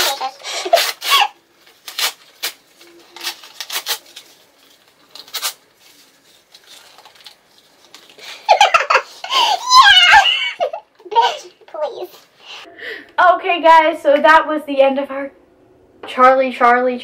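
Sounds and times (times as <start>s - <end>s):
paper tearing: 0.0s - 8.0s.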